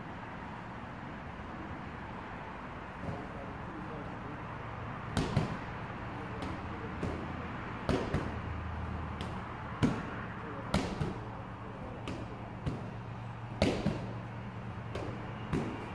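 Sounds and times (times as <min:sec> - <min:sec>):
medicine ball thudding on wall: 0:05.1 - 0:11.3, 0:11.9 - 0:15.9.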